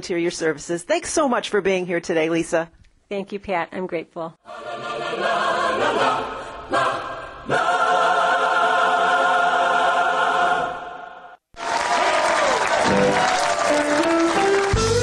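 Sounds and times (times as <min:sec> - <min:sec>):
choir singing held chords: 0:04.4 - 0:11.4.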